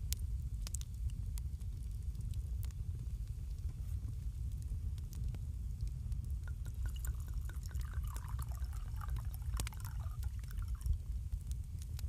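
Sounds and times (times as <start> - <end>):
fireplace rumble and crackles: 0.0 - 12.0.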